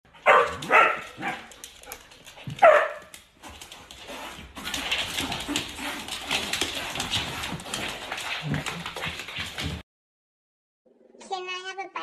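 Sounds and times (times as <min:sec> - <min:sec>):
dog barking: 0:00.2 - 0:01.5, 0:02.6 - 0:03.1.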